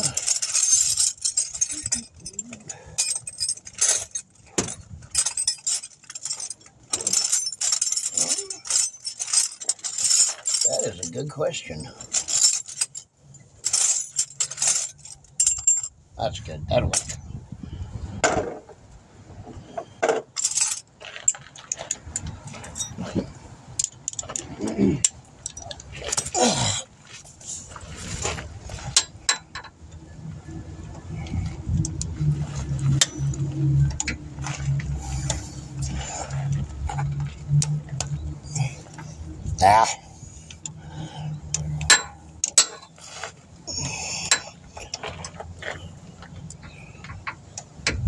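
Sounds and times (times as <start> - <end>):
steel hand tools clinking: 0.0 - 15.9, 40.4 - 43.1.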